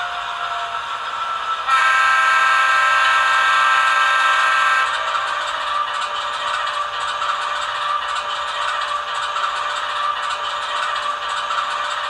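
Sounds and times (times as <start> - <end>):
air horn blast: 1.7 - 5.0.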